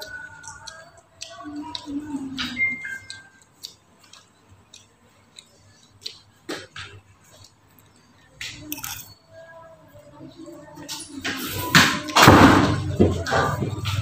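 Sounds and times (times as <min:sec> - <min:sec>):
chewing: 0:00.0 - 0:09.2.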